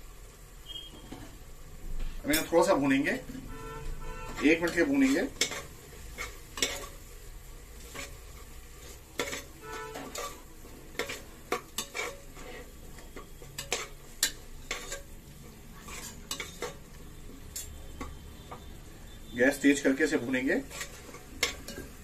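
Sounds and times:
paste sizzling in oil: 0:00.0 - 0:22.0
spatula scraping a pot: 0:03.5 - 0:07.0, 0:07.8 - 0:19.2, 0:20.4 - 0:22.0.

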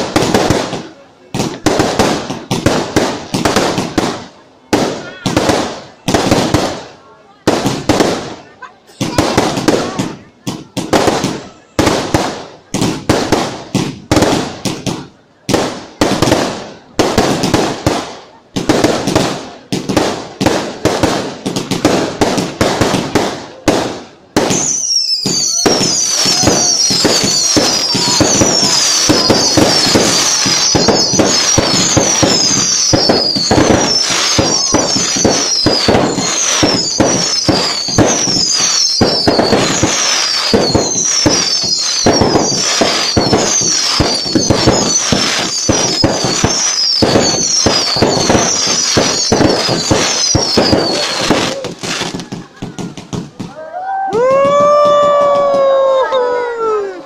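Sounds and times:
fireworks bangs: 0:00.0 - 0:56.6
fireworks crackling and popping: 0:00.0 - 0:57.0
high falling whistles: 0:24.6 - 0:51.7.

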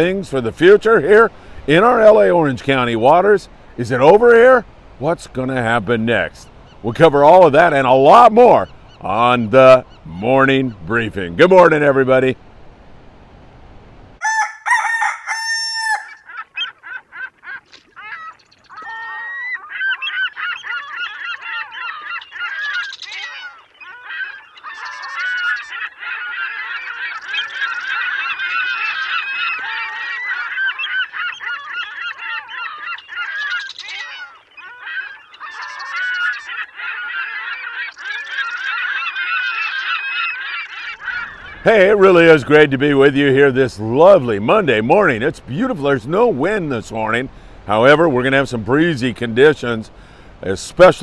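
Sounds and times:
flock of birds honking: 0:14.2 - 0:43.4.

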